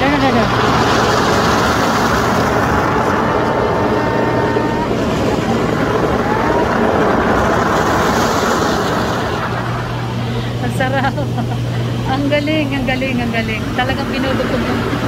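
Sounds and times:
water jets pounding vinyl cover: 0.0 - 11.2
pump humming: 0.0 - 15.0.

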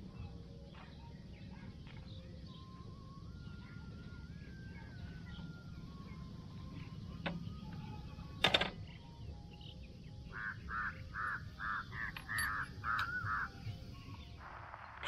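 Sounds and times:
crow cawing: 10.3 - 13.6.

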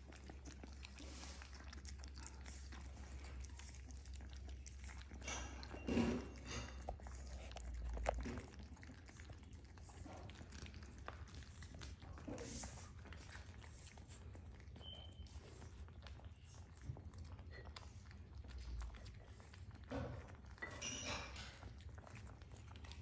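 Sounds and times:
puppies chewing: 0.0 - 23.0.

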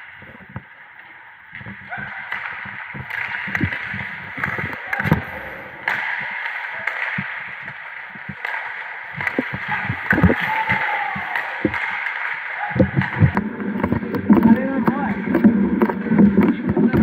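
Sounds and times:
knocks and thuds: 9.2 - 10.7, 12.8 - 17.0.

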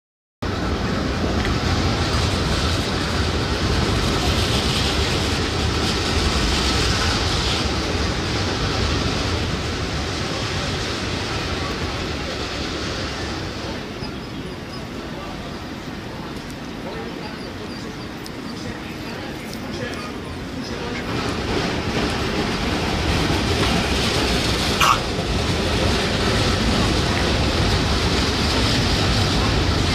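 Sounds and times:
city street traffic: 0.4 - 29.9.

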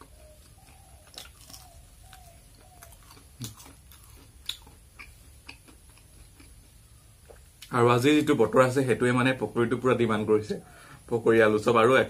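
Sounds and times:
person chewing crunchy food: 0.0 - 7.7.

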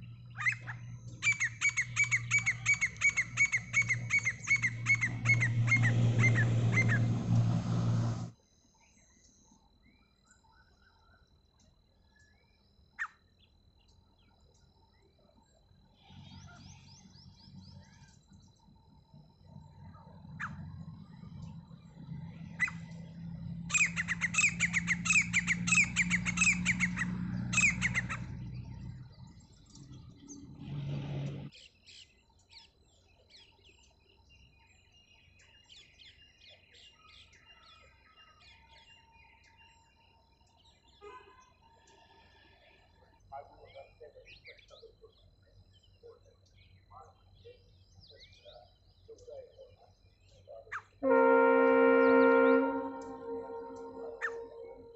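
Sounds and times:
faint bird chirps: 0.0 - 7.0, 8.5 - 30.6, 31.5 - 51.0, 52.0 - 54.9
francolin calling: 0.0 - 7.0, 23.7 - 28.3, 49.3 - 54.9.

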